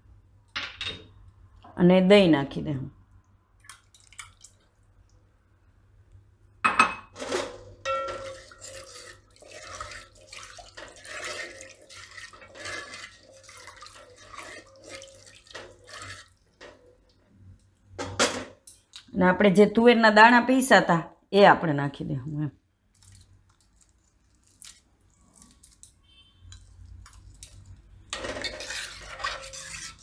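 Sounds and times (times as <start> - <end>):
liquid sloshing in a pot: 3.5 - 5.2, 7.2 - 17.9, 22.8 - 30.0
ladle scraping and clinking on pot: 7.1 - 16.9, 26.5 - 30.0.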